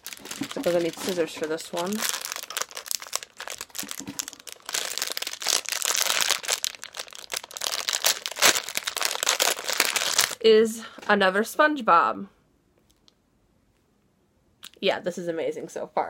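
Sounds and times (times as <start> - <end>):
foil wrapper crinkling and tearing: 0.0 - 10.4.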